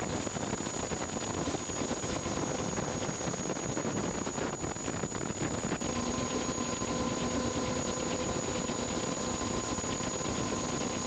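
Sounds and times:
engine drone with high whine: 0.0s - 11.0s
low steady hum: 5.7s - 11.0s.

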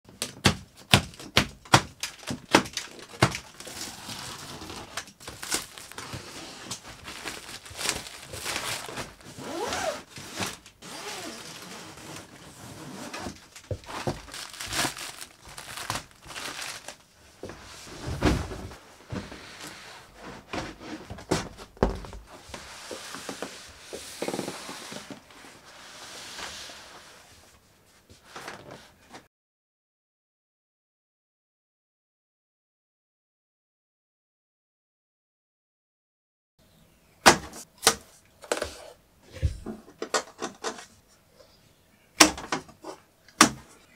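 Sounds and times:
heavy cardboard thumps: 0.2s - 3.4s, 17.4s - 19.3s
plastic straps snapping: 0.2s - 3.8s, 13.3s - 17.0s
plastic wrap crinkling and tearing: 0.9s - 17.1s.

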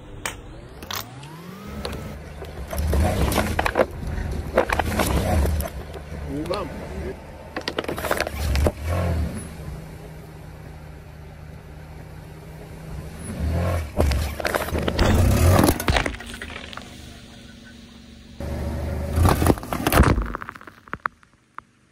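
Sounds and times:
car engine idling: 9.4s - 13.3s, 13.9s - 19.8s
plastic bottle crunching under tyre: 14.0s - 17.0s, 19.1s - 21.7s.

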